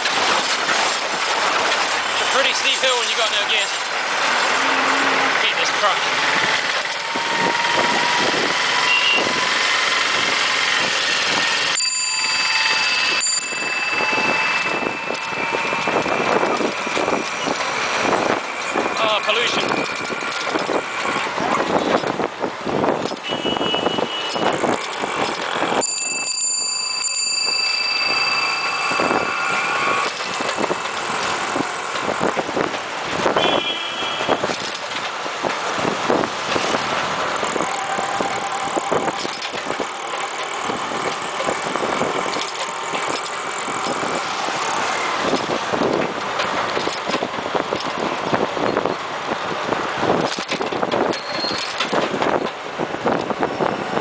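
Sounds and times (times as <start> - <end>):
bicycle rattles and knocks: 0.0 - 4.5, 5.4 - 54.0
traffic: 0.0 - 54.0
wind rushing: 4.0 - 11.5.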